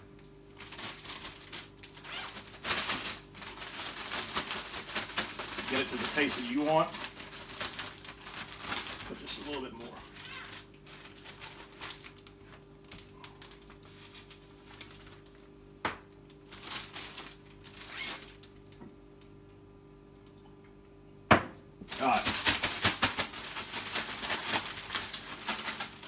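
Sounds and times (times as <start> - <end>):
faint steady hum: 0.0 - 26.0
plastic bag rustling: 0.6 - 15.6, 16.3 - 18.8, 21.9 - 26.0.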